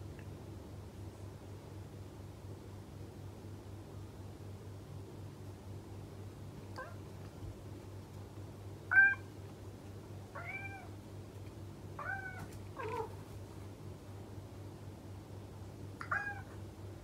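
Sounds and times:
cat meowing: 0:06.8 - 0:07.0, 0:08.9 - 0:09.3, 0:10.3 - 0:11.0, 0:12.0 - 0:13.2, 0:16.0 - 0:16.6.

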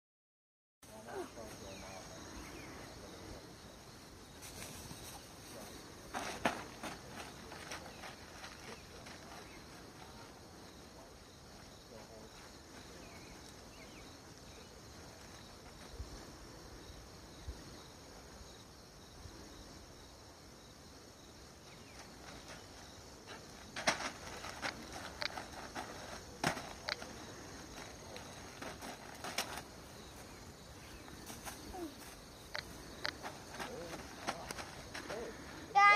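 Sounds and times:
insects chorus: 0:00.8 - 0:35.9
child jumping on hay bales: 0:04.4 - 0:10.2, 0:22.0 - 0:35.9.

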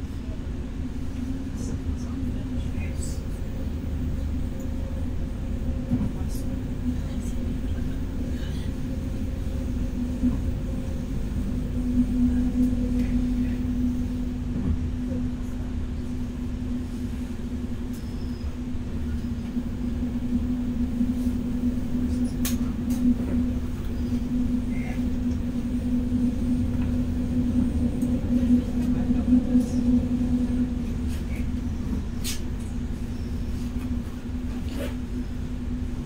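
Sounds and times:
steady hum: 0:00.0 - 0:36.0
train wheels rumbling on track: 0:00.0 - 0:36.0.

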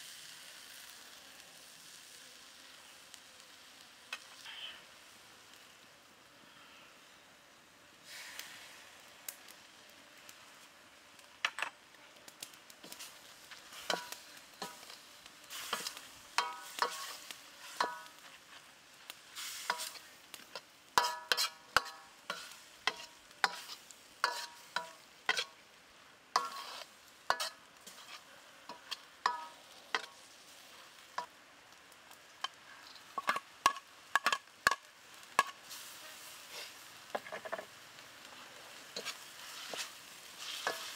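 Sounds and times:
low sizzle: 0:00.0 - 0:40.9
steel ladle striking a wok: 0:15.8 - 0:17.0, 0:17.8 - 0:18.2, 0:21.0 - 0:23.6, 0:28.7 - 0:30.1.

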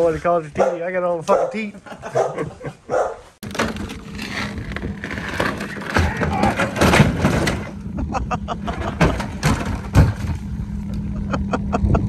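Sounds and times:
wooden sled knocking and scraping: 0:03.4 - 0:10.6.

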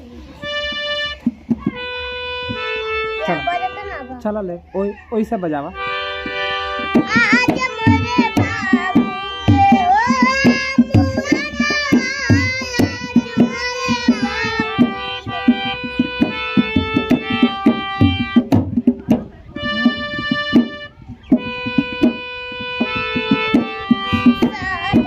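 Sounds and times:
harmonium chords: 0:00.0 - 0:04.6, 0:05.6 - 0:25.0
hand drum beat: 0:00.7 - 0:02.7, 0:06.8 - 0:25.0
girl singing: 0:06.8 - 0:18.3, 0:23.6 - 0:25.0.

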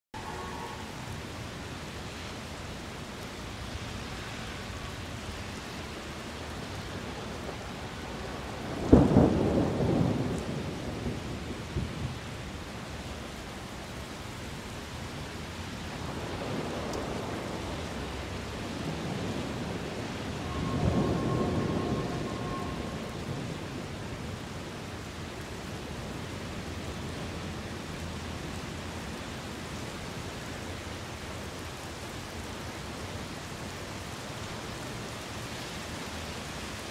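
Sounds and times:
rain hissing: 0:00.2 - 0:36.9
thunder crack and rumble: 0:06.9 - 0:12.9, 0:15.9 - 0:25.1.

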